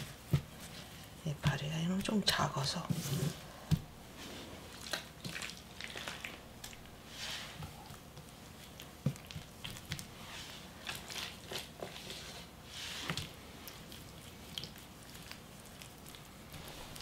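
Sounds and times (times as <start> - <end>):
sticky squishes of kimchi filling: 4.3 - 17.0.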